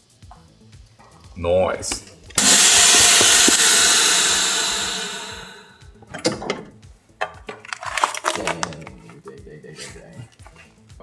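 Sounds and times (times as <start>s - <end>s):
vacuum sealer air hiss: 2.4s - 5.8s
lid clicks: 7.2s - 8.8s.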